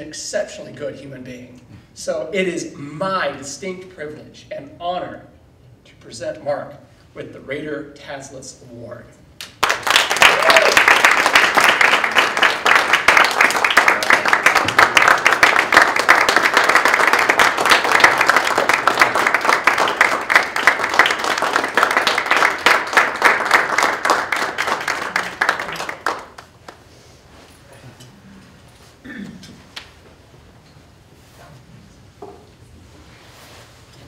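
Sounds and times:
audience applauding: 0:09.6 - 0:26.8.

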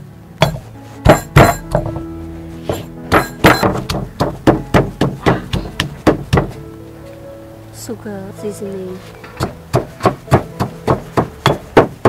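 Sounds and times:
background music: 0:00.0 - 0:12.0
pestle pounding in stone mortar: 0:00.4 - 0:02.1, 0:02.7 - 0:06.6, 0:09.4 - 0:12.0.

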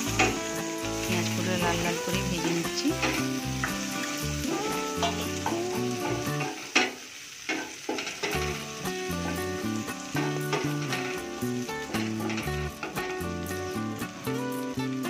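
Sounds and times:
background music: 0:00.0 - 0:06.7, 0:08.0 - 0:15.0
onions sizzling in hot oil: 0:00.0 - 0:15.0
spatula stirring in pan: 0:02.3 - 0:13.8.

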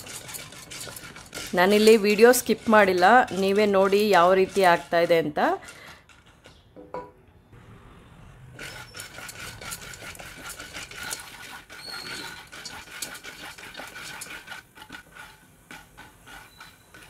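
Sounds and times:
spatula scraping kernels: 0:00.0 - 0:06.7, 0:08.5 - 0:17.0
oil sizzling: 0:08.5 - 0:17.0.

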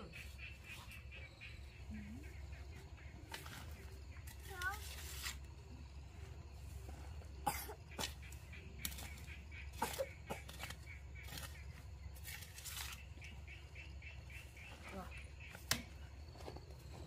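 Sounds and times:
metal shovel scraping soil: 0:03.3 - 0:05.6, 0:07.9 - 0:13.3.

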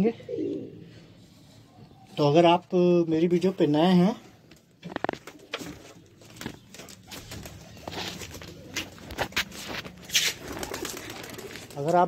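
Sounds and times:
pigeons cooing: 0:00.0 - 0:01.2, 0:04.9 - 0:11.9.

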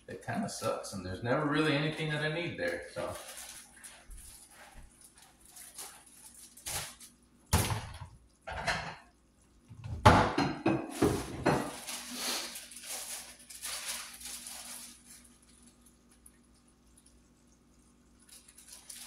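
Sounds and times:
kitchen items knocking and clattering: 0:06.7 - 0:09.1, 0:09.7 - 0:14.2.

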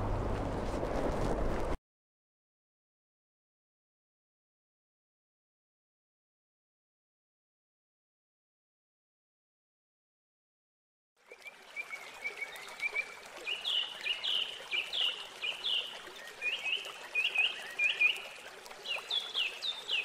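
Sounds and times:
water trickling into pond: 0:11.2 - 0:20.0
songbird chirping: 0:11.3 - 0:20.0.

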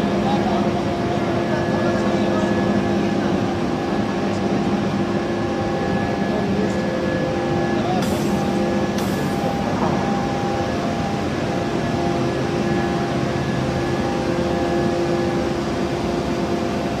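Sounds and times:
machinery hum: 0:00.0 - 0:17.0
steady machine tones: 0:00.0 - 0:17.0.

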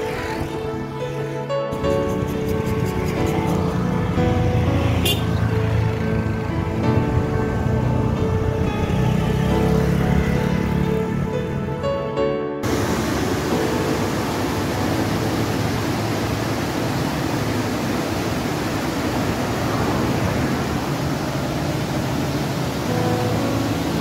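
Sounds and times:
background music: 0:00.0 - 0:20.6, 0:22.3 - 0:24.0
river rushing over boulders: 0:12.6 - 0:24.0.

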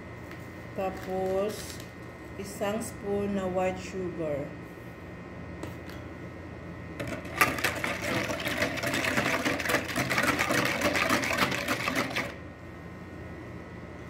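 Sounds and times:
whisk rattling against bowl: 0:07.0 - 0:12.4.

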